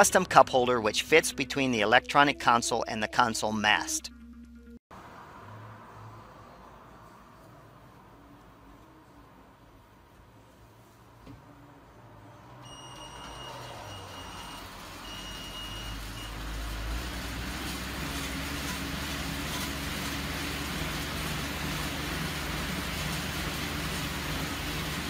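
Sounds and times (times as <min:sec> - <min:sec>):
exercise bike fan whooshing: 0:13.9 - 0:25.0.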